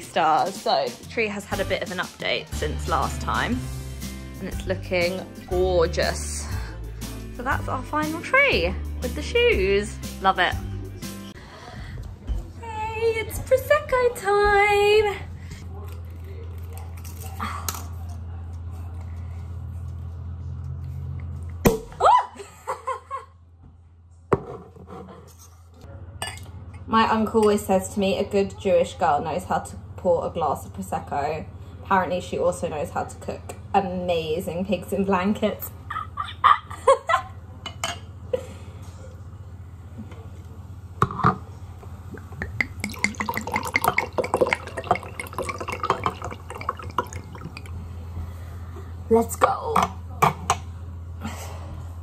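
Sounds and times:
woman squealing and laughing: 0:22.0 - 0:22.6
low steady hum: 0:41.5 - 0:52.0
cork popping: 0:42.1 - 0:47.8
sparkling wine pouring into glass: 0:42.4 - 0:47.9.

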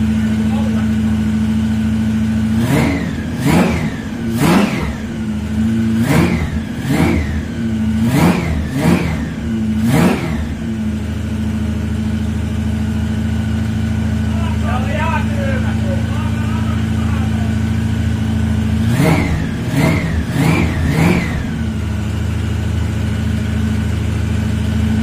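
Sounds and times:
car engine revving and idling: 0:00.0 - 0:25.0.

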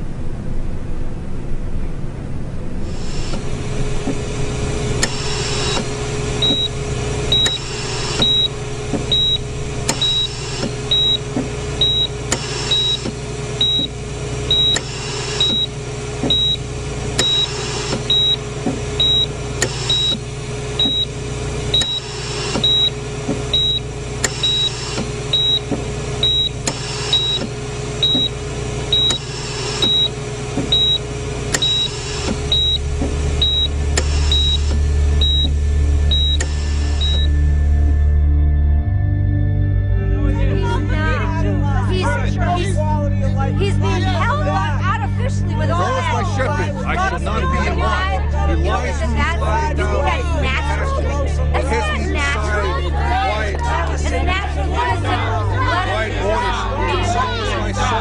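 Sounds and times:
steady hum: 0:00.0 - 0:58.0
patient monitor beeping: 0:05.0 - 0:37.6.

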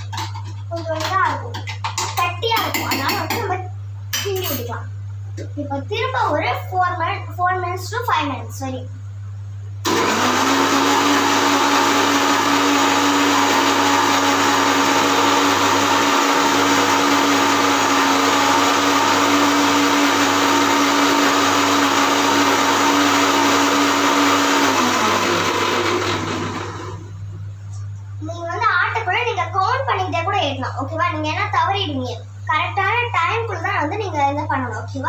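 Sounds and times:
mixer grinder motor whine: 0:09.8 - 0:27.3.

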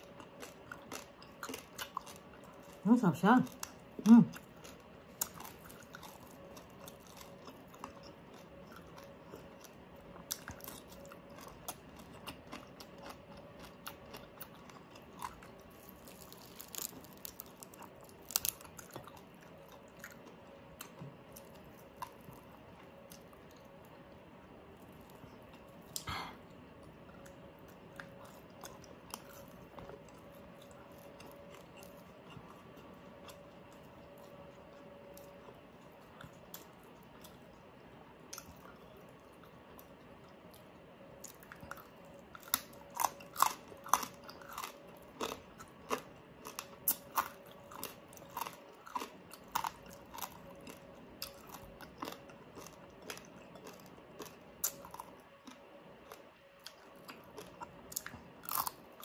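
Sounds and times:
quiet chewing: 0:00.0 - 0:59.0
crisp crunches and bites: 0:00.1 - 0:19.3.

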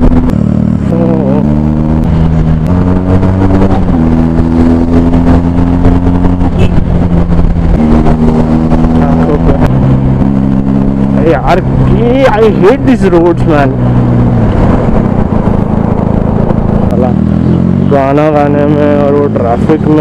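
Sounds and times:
motorcycle engine running: 0:00.0 - 0:20.0
man humming a tune: 0:00.8 - 0:01.8.

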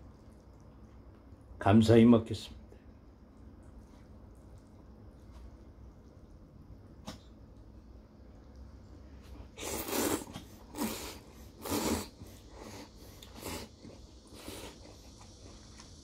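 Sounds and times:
man slurping noodles: 0:09.5 - 0:15.3.

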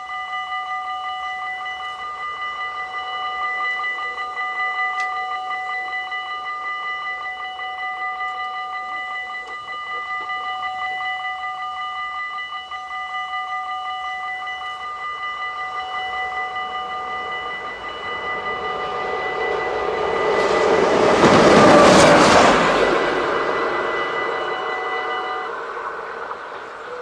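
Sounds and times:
level crossing bells ringing: 0:00.0 - 0:27.0
passing train rushing: 0:14.1 - 0:27.0.

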